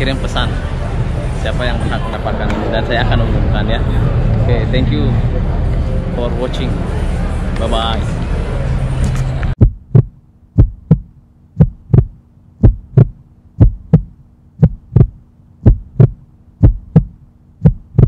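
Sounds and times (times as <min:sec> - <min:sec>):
faint steady hum: 0:00.0 - 0:18.0
outdoor street sound: 0:00.0 - 0:18.0
heartbeat thumps: 0:09.6 - 0:18.0.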